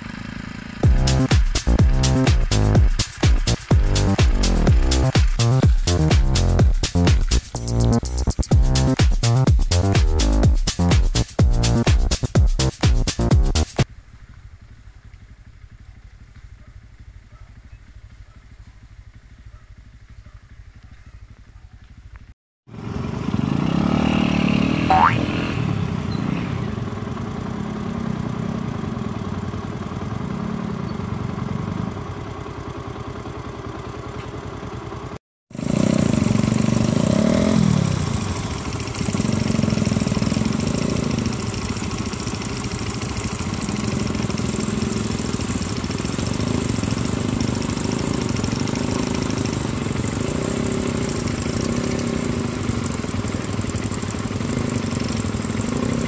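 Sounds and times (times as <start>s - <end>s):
pit bike engines revving: 0.0s - 9.0s, 22.7s - 32.4s, 35.6s - 56.0s.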